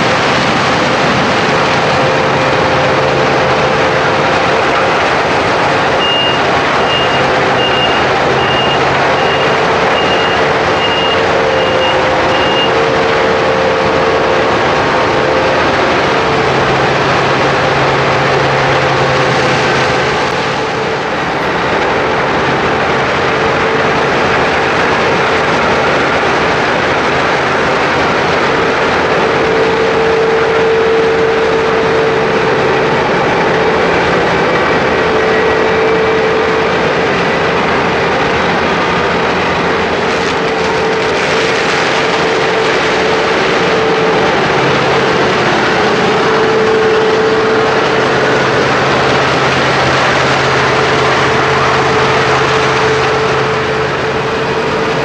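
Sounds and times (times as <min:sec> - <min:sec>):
combine harvester running: 0:00.0 - 0:55.0
reversing alarm beeps: 0:05.9 - 0:12.8.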